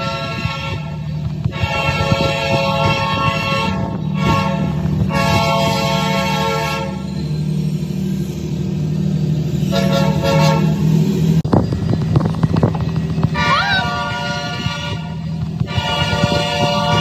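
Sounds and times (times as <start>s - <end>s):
locomotive air horn blasts: 0.0s - 7.1s, 9.7s - 11.0s, 13.3s - 17.0s
diesel engine running: 0.0s - 17.0s.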